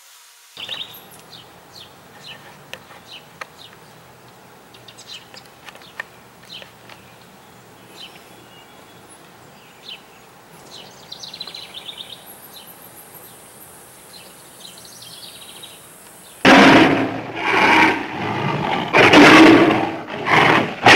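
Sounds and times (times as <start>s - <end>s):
bird trill: 0.6s - 3.7s, 4.7s - 16.5s
songbirds chirping: 0.6s - 17.0s.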